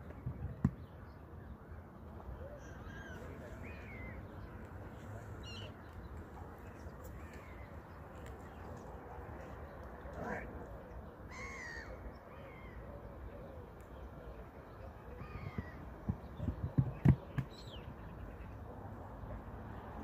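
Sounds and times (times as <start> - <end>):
birds cawing: 11.3 - 12.8.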